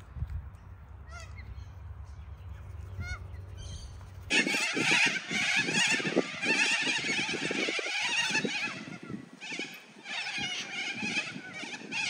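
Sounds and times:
corella calls: 4.3 - 12.0
flock of cockatoos screeching: 4.3 - 12.0.

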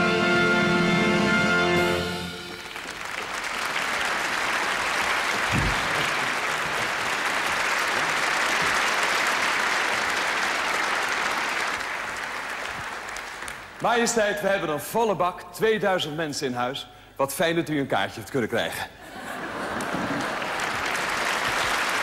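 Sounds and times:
audience applauding: 2.0 - 13.9, 19.4 - 22.0
low thump: 5.5 - 6.1.

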